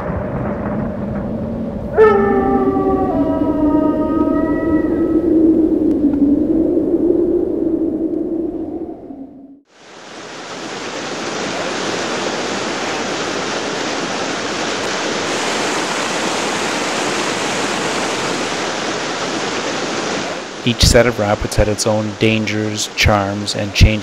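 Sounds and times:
low hum: 0.0s - 9.6s
whitewater rapids rushing: 9.9s - 23.2s.

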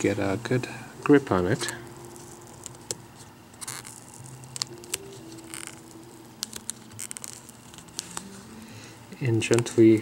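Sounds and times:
adhesive tape peeling off: 3.6s - 8.3s.

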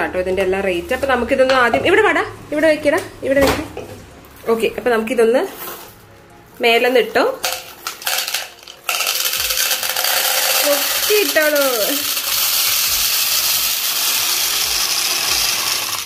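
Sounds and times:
candies rattling into plastic tumbler: 7.3s - 16.0s.

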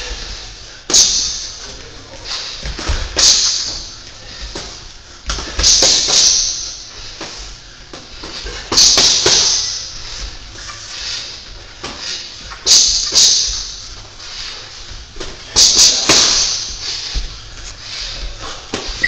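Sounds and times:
boxing gloves smacking: 8.2s - 9.8s, 15.2s - 16.7s.

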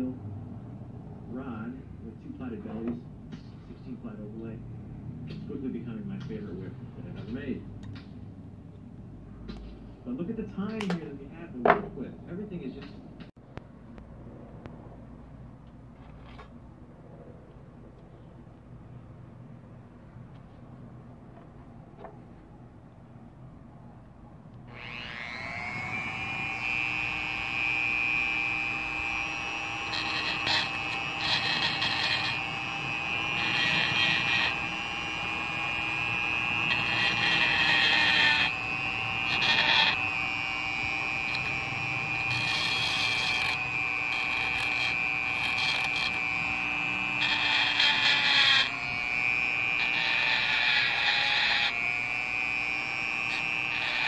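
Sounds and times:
rotary tool high whine: 24.5s - 54.0s
sanding drum grinding metal: 24.7s - 54.0s.

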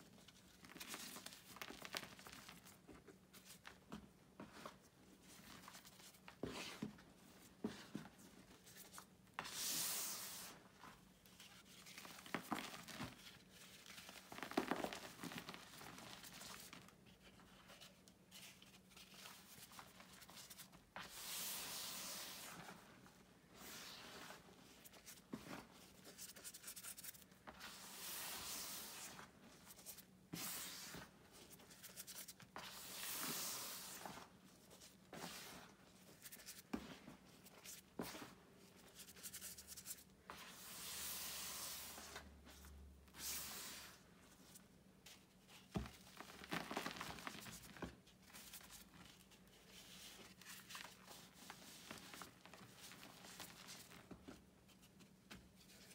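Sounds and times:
hands raking chalk powder: 9.4s - 10.7s, 26.2s - 31.1s, 31.7s - 34.2s.

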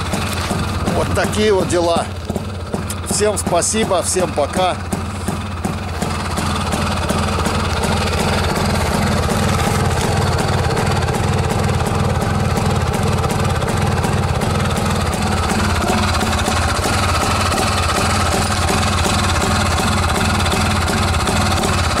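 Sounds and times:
motorcycle engine idling: 0.0s - 22.0s
person talking: 0.8s - 2.2s, 3.0s - 4.9s.

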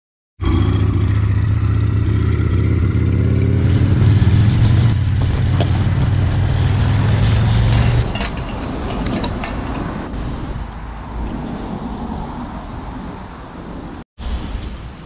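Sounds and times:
motorcycle engine running: 0.4s - 7.6s.

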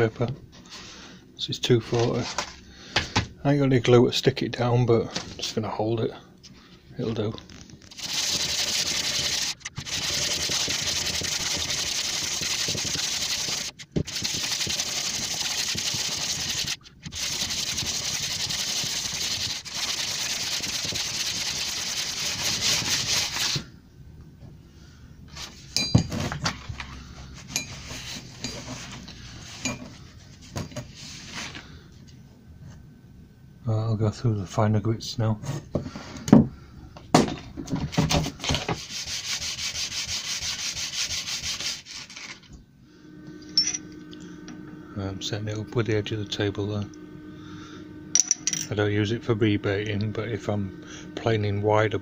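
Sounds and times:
blades scraping on abrasive paper: 7.9s - 23.7s, 38.8s - 42.5s.

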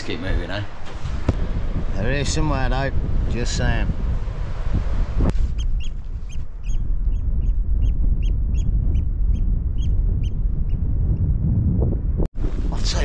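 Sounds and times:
wind rumble on microphone: 0.1s - 13.0s.

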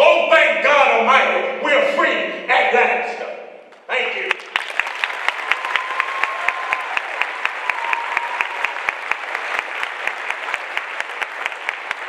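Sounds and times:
audience applause: 4.2s - 12.0s.

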